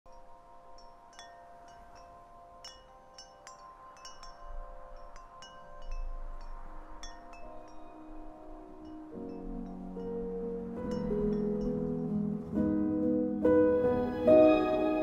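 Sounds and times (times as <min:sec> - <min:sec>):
held music chord: 0:07.9 - 0:15.0.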